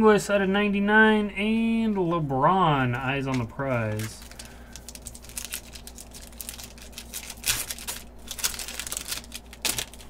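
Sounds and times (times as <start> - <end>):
foil wrapper crinkling: 3.2 - 10.0
foil wrapper ripping: 3.7 - 10.0.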